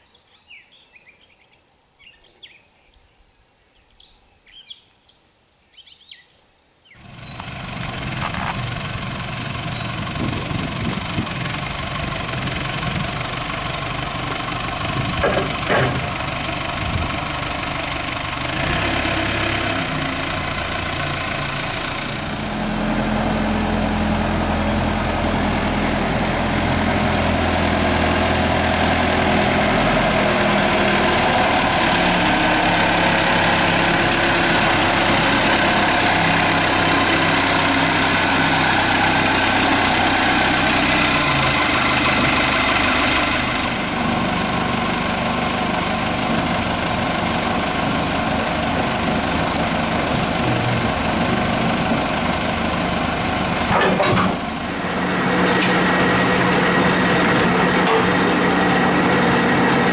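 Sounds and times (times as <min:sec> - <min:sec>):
forklift engine running: 0:07.0 - 0:59.9.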